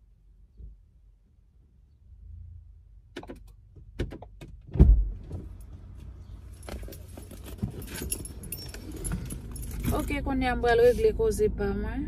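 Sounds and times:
sharp clicks and knocks: 3.1 - 5.5
keys jingling: 6.5 - 10.2.

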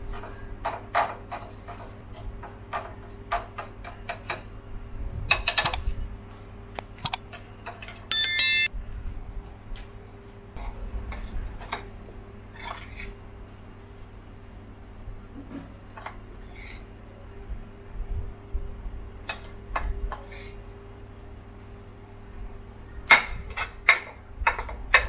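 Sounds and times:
short bright electronic chime: 8.1 - 8.7.

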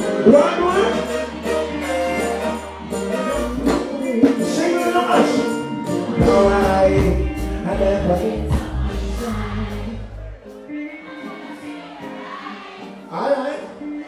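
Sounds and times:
heavy bass: 0.0 - 4.6, 6.2 - 10.4
live band music: 0.0 - 14.0
man singing into a microphone: 3.2 - 11.3, 13.1 - 14.0.

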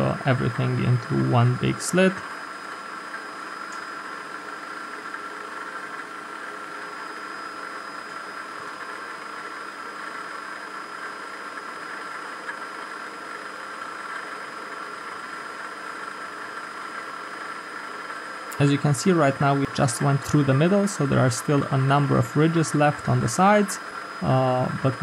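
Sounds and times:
high whine: 0.0 - 25.0.

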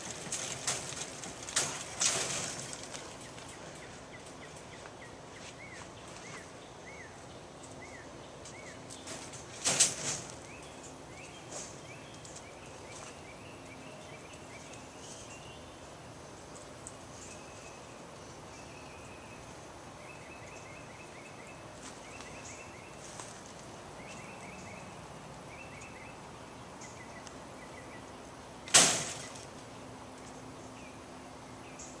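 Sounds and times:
sharp loud knock: 28.7 - 29.3.

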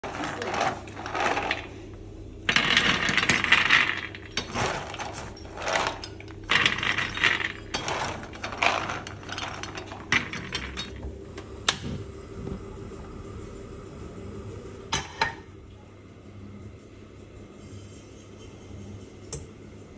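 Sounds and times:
nuts clattering onto metal tray: 2.5 - 11.0.

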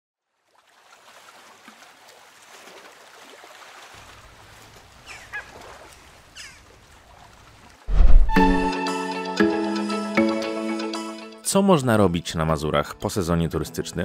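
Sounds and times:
faint lakeside ambience: 0.2 - 7.9
waterfowl calling: 5.0 - 6.8.

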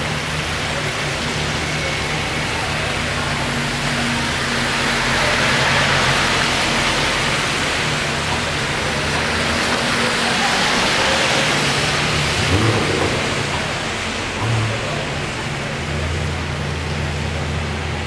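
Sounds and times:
street and traffic noise: 0.0 - 18.0
low engine hum: 11.6 - 18.0.

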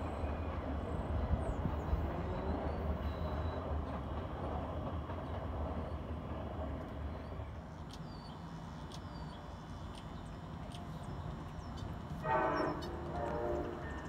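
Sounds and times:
train rumbling: 0.0 - 14.0
train horn blast: 12.2 - 14.0.

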